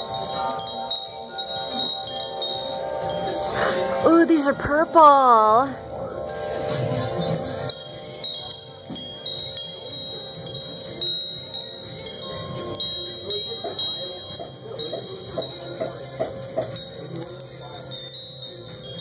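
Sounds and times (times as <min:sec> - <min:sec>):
metal wind chimes ringing: 0:00.0 - 0:19.0.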